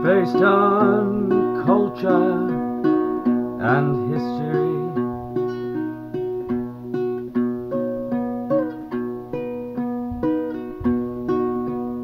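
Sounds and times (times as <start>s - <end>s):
acoustic guitar fingerpicked: 0.0s - 12.0s.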